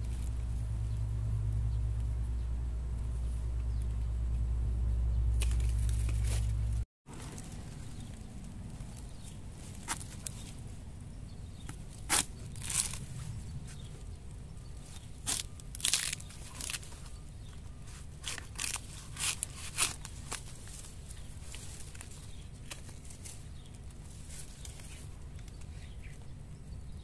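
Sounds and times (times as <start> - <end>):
knife crunching through bamboo: 5.4 - 6.6, 9.7 - 10.4, 11.6 - 13.9, 15.0 - 17.2, 17.8 - 25.6.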